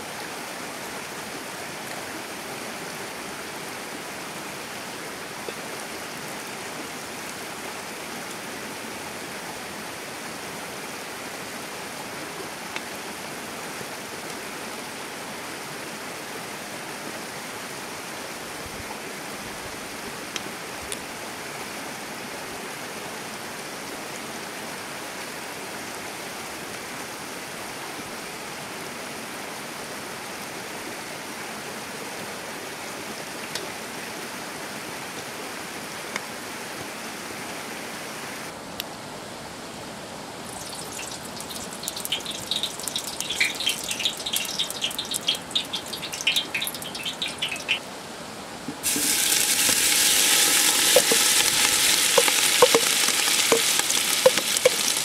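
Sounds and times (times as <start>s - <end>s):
stream flowing: 39.4s - 55.0s
wooden spoon clicking on steel bowl: 50.8s - 55.0s.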